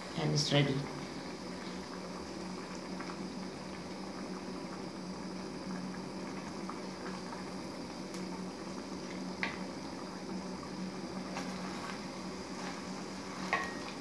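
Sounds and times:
curry bubbling in a pot: 0.0s - 14.0s
wooden spoon stirring: 11.3s - 14.0s.

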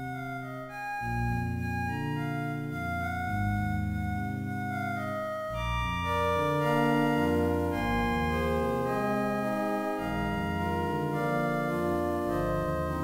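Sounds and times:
electronic keyboard chords: 0.0s - 13.0s.

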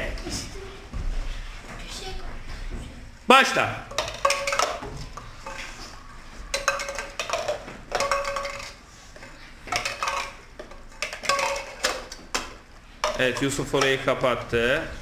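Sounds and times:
plastic cups clacking on board: 3.9s - 14.2s.

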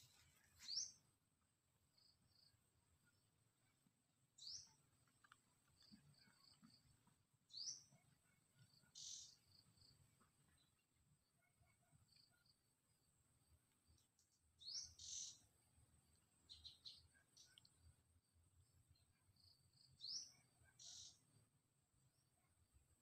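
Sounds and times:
bird chirping: 0.0s - 1.1s, 4.4s - 6.9s, 7.5s - 11.4s, 14.2s - 17.8s, 18.9s - 21.4s.

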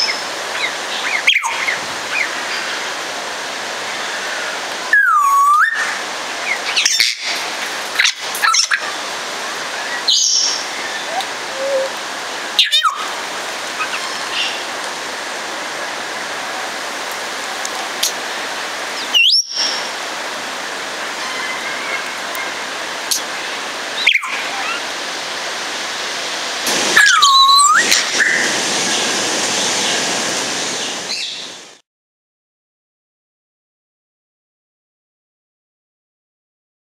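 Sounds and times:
parrot whistles sliding in pitch: 11.0s - 11.9s, 27.0s - 28.4s
rushing background noise: 19.7s - 31.8s.

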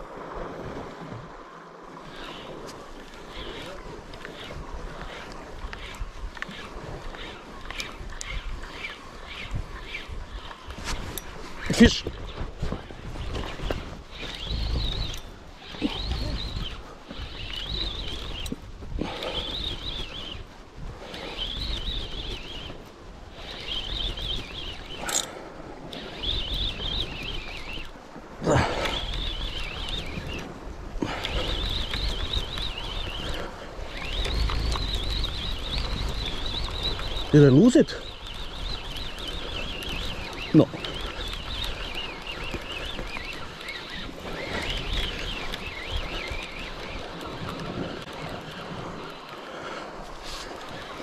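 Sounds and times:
wind noise on microphone: 3.3s - 51.0s
fishing reel gears whining: 23.3s - 27.9s, 31.0s - 49.1s.

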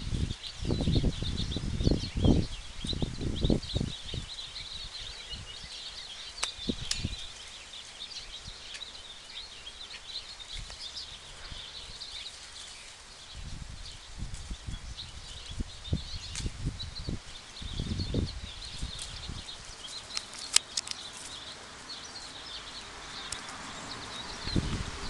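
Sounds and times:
small birds chirping: 0.0s - 25.0s
sharp clicks: 6.4s - 7.2s, 19.9s - 21.4s.

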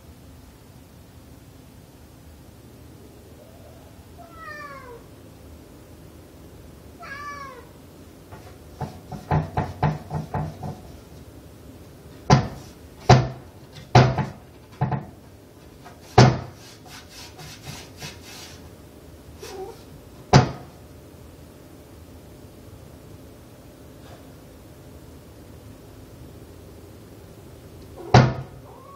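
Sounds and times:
cat meowing: 4.2s - 5.1s, 7.0s - 7.8s, 28.0s - 28.9s
wooden door knocking and banging: 8.8s - 10.9s, 12.2s - 15.2s, 20.3s - 20.7s, 28.1s - 28.5s.

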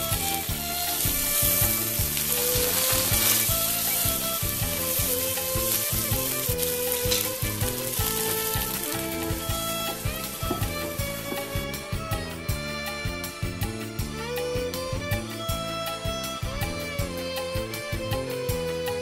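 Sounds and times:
fish sizzling on grill pan: 0.0s - 11.8s
wooden spatulas turning food: 0.0s - 11.8s
background music: 0.0s - 19.0s.

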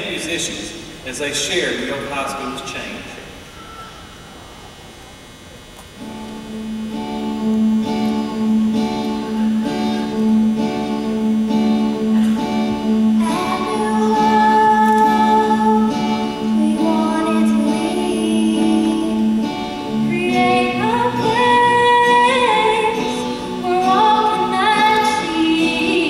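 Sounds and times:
acoustic guitar strumming: 3.4s - 26.0s
person singing: 13.0s - 26.0s.

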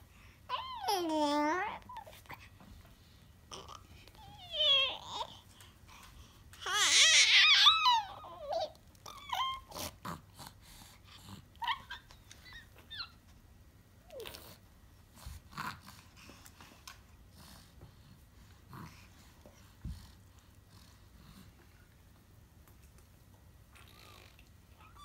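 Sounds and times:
baby squealing and babbling: 6.6s - 9.9s.

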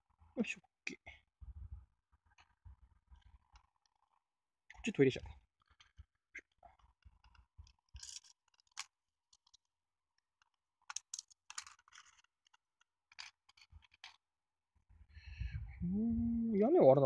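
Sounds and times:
plastic parts clicking and scraping: 5.6s - 14.2s.

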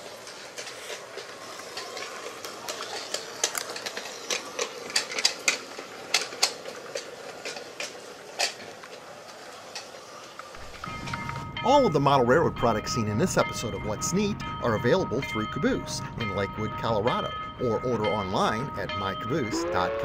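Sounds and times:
toy train motor whirring: 0.0s - 10.6s
wheels clicking on rail joints: 0.0s - 20.0s.

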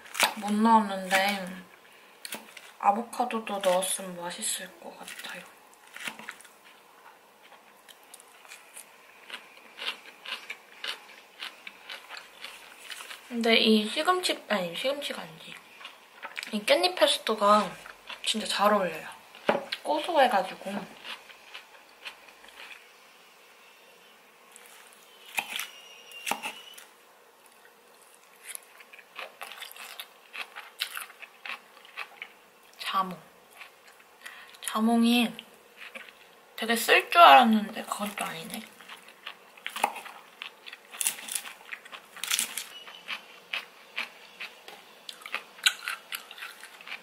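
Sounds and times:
chewing crisp salad: 4.9s - 13.4s, 15.5s - 18.6s, 19.3s - 22.9s, 24.5s - 32.9s, 33.5s - 34.7s, 35.4s - 36.4s, 37.8s - 47.0s.

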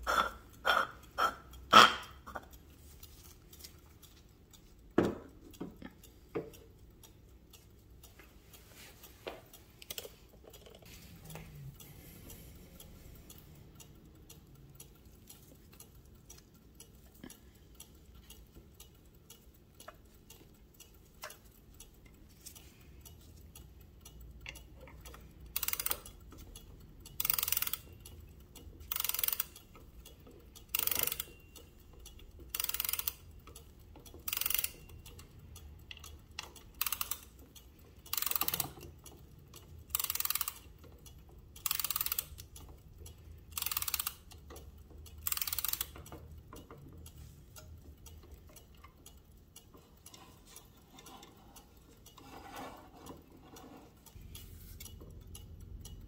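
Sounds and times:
faint clock ticking: 0.0s - 56.0s
ratchet clicking of clock winding: 0.0s - 56.0s.

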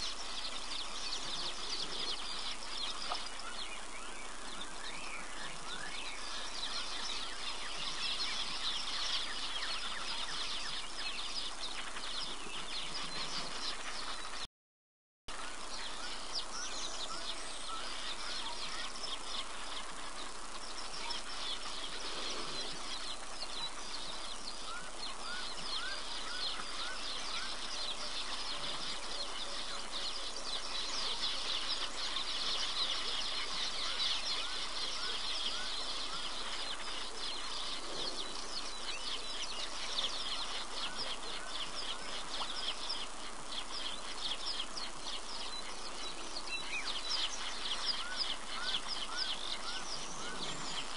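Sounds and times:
birds twittering chorus: 0.0s - 14.5s, 15.3s - 50.9s.

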